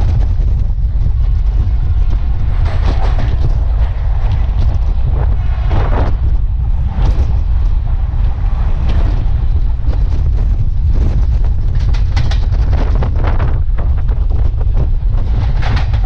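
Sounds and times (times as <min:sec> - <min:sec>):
train running rumble: 0:00.0 - 0:16.0
wind buffeting microphone: 0:00.0 - 0:16.0.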